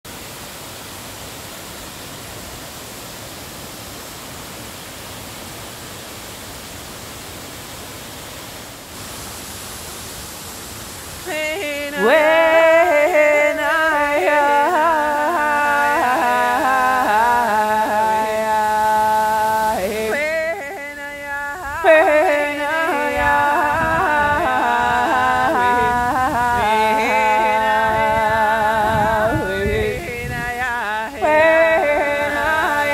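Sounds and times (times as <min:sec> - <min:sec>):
waterfall rushing: 0:00.1 - 0:32.9
person singing wordless melody: 0:11.2 - 0:32.9.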